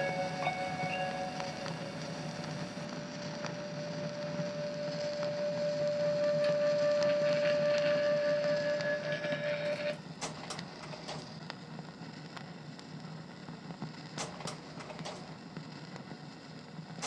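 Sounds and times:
held musical note: 0.0s - 2.8s
projector fan hum: 0.0s - 17.0s.

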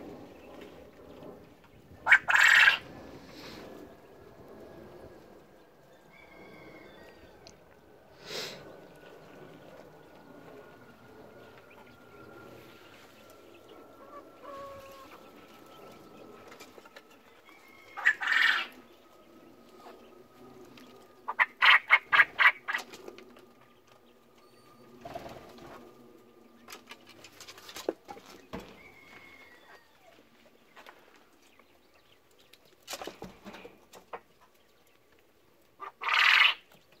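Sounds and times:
quails and chickens clucking: 1.1s - 4.1s, 5.8s - 10.2s, 11.4s - 37.0s
quail crowing: 2.0s - 3.6s, 5.9s - 7.6s, 11.5s - 19.1s, 21.2s - 23.0s, 28.6s - 30.2s, 35.8s - 36.7s
birds scuffling on litter: 12.5s - 19.0s, 26.6s - 33.8s.

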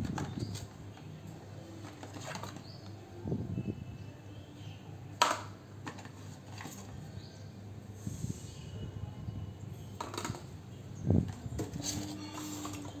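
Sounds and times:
cardboard and plastic rustling: 1.7s - 2.8s, 5.8s - 7.1s.

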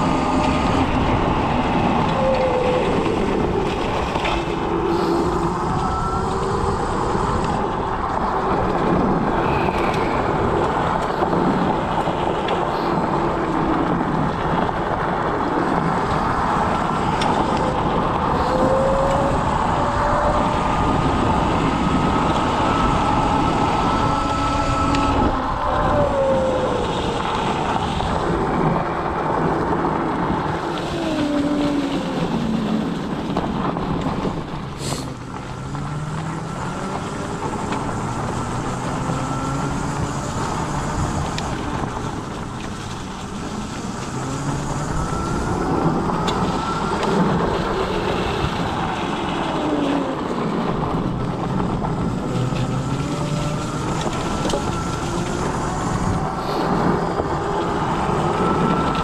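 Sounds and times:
scooter whine gliding in pitch: 0.0s - 59.0s
wind and road noise: 0.0s - 59.0s.

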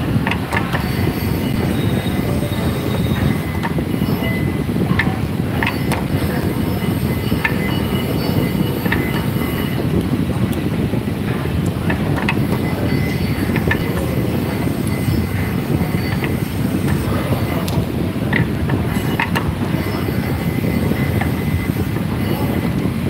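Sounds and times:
machinery rumbling: 0.0s - 23.0s.

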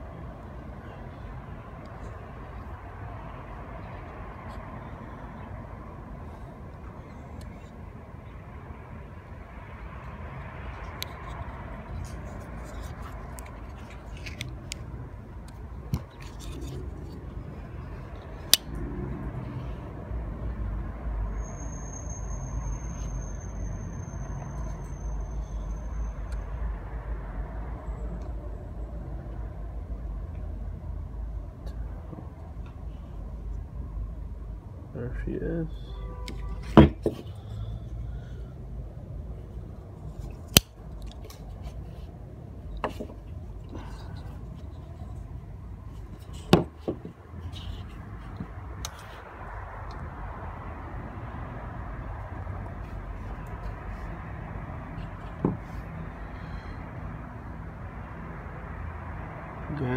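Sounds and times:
faint handling sounds: 10.7s - 18.6s, 39.4s - 49.3s.

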